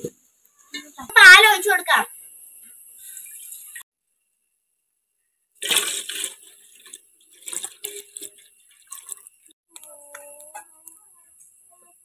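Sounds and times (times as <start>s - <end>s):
milk pouring and splashing: 5.6s - 9.6s.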